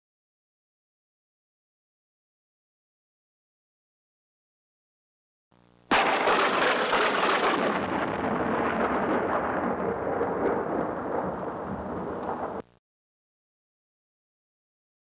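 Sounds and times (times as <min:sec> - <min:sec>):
thunder crack and roll: 0:05.9 - 0:12.7.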